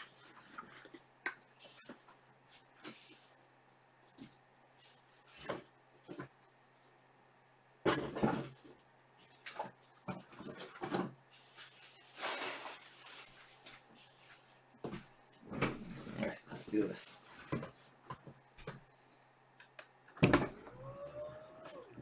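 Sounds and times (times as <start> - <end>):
rustling: 11.3 - 14.6.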